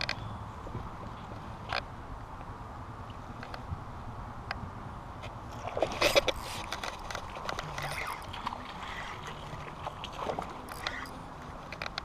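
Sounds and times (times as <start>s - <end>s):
fishing reel clicks: 6.2s - 8.3s, 10.7s - 12.0s.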